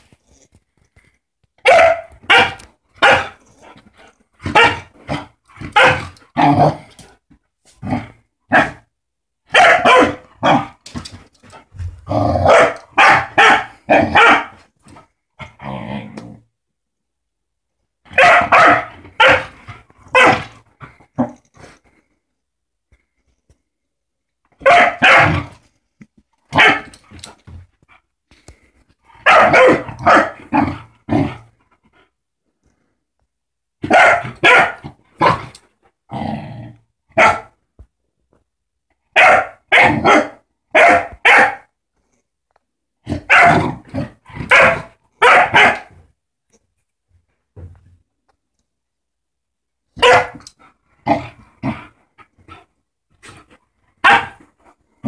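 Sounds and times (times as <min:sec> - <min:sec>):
puppy barking: 0:01.6 - 0:03.4, 0:04.4 - 0:04.9, 0:05.7 - 0:06.2, 0:08.5 - 0:08.8, 0:09.5 - 0:10.8, 0:12.4 - 0:14.6, 0:18.1 - 0:20.5, 0:24.6 - 0:25.5, 0:26.5 - 0:26.9, 0:29.2 - 0:30.7, 0:33.8 - 0:35.4, 0:37.1 - 0:37.5, 0:39.1 - 0:41.7, 0:43.2 - 0:43.7, 0:44.4 - 0:46.0, 0:50.0 - 0:50.4, 0:54.0 - 0:54.4.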